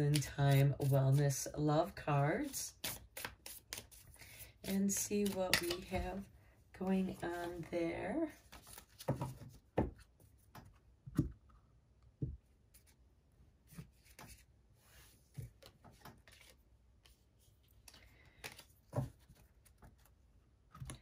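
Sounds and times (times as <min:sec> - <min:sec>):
card deck shuffling: 0:02.4 - 0:04.1, 0:04.7 - 0:06.2.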